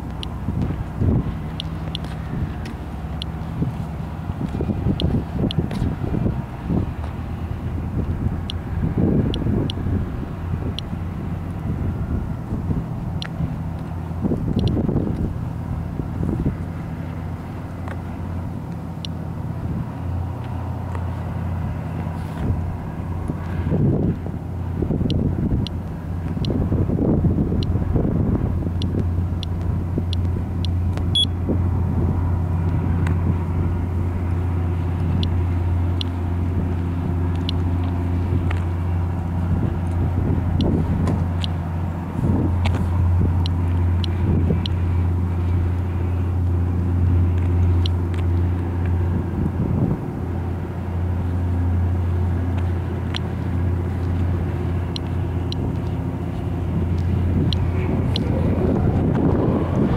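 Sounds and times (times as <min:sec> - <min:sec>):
engine idling: 0:00.0 - 0:59.9
geiger counter clicks: 0:14.5 - 0:14.8.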